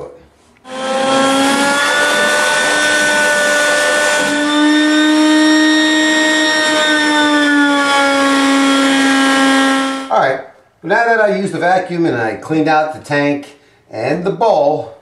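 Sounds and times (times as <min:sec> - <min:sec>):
shop vacuum motor whine: 0:00.6 - 0:10.1.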